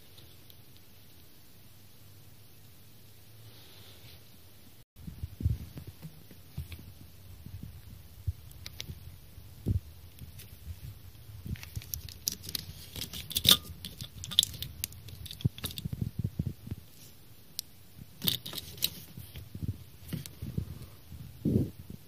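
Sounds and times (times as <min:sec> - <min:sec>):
faint low rumble: 0:04.4 - 0:18.2.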